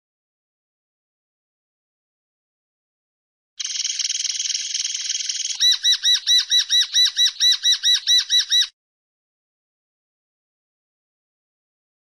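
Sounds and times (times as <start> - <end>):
linnet singing: 3.6 - 8.7.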